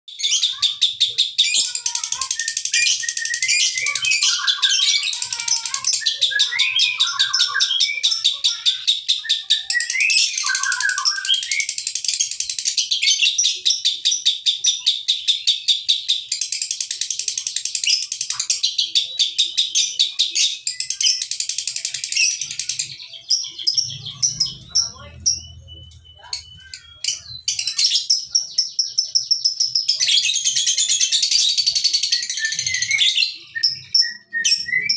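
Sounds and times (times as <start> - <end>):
lovebird high-pitched chatter: 0.1 - 34.9.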